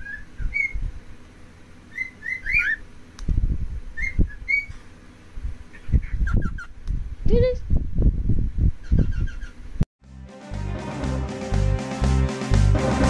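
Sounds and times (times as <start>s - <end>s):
cockatiel whistling: 0.0s - 0.8s, 1.9s - 2.8s, 4.0s - 4.7s.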